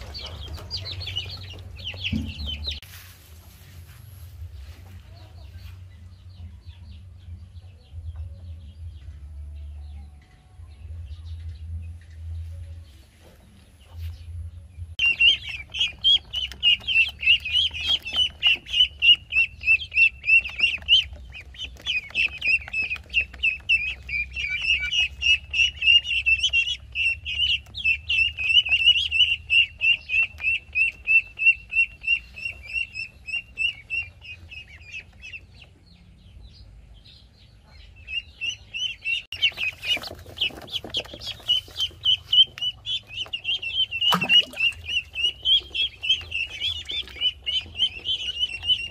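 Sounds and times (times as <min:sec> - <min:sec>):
rustling scuffle: 0:00.0 - 0:05.8
ducklings peeping: 0:00.0 - 0:48.9.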